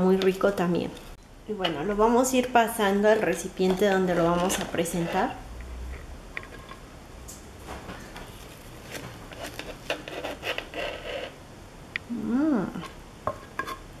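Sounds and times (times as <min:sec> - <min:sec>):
soft rubbing and scraping: 0:04.0 - 0:06.8, 0:07.7 - 0:11.4.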